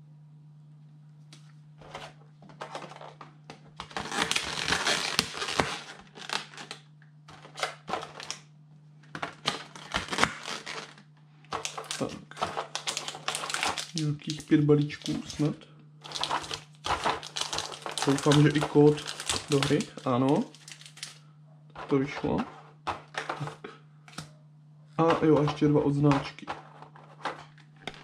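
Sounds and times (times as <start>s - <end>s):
steady low hum: 0.0s - 28.0s
packs rustling: 1.8s - 8.4s, 9.2s - 21.2s, 21.8s - 23.7s, 25.0s - 28.0s
plastic packaging crackling: 2.5s - 8.4s, 9.1s - 21.2s, 25.0s - 28.0s.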